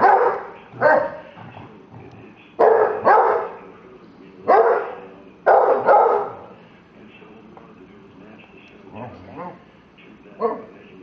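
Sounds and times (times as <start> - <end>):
dog barking loudly: 0.0 - 1.2, 2.6 - 3.6, 4.5 - 6.4.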